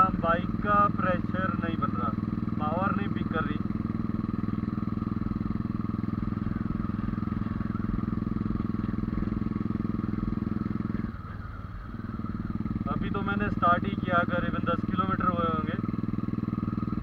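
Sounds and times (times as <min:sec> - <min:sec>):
rider speaking: 0:00.0 - 0:03.7, 0:12.8 - 0:16.0
motorcycle engine under load: 0:00.0 - 0:17.0.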